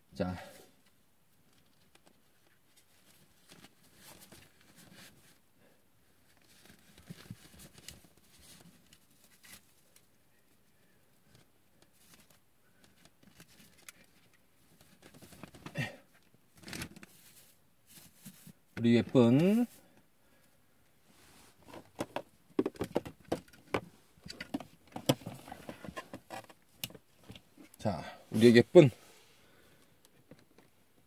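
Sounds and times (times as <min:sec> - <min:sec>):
rustling and light clicks: 0:06.2 - 0:10.6, 0:11.2 - 0:20.1.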